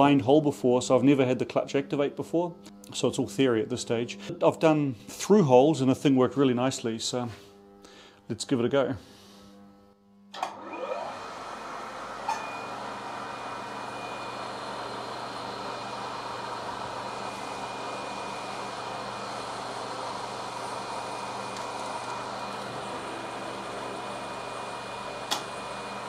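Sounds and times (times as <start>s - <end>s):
mill spindle spinning: 10.4s - 26.0s.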